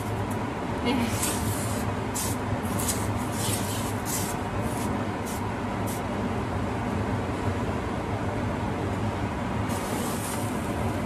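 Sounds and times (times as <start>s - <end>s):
exhaust fan whooshing hum: 0.0s - 11.0s
short hissing bursts: 1.2s - 6.0s.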